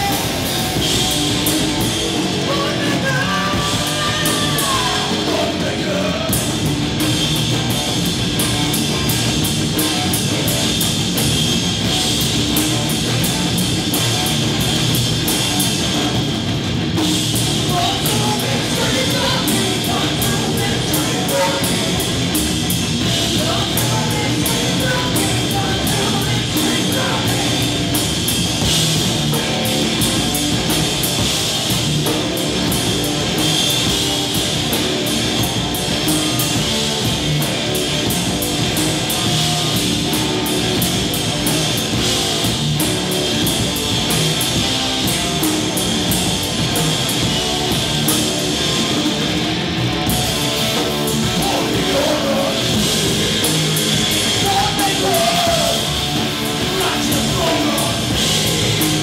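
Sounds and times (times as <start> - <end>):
bass guitar: 0.0 - 59.0
distorted electric guitar: 0.0 - 59.0
drum kit: 0.0 - 59.0
person singing: 2.4 - 6.4, 17.7 - 22.1, 23.3 - 27.7, 51.3 - 53.6, 54.3 - 56.0, 56.6 - 59.0.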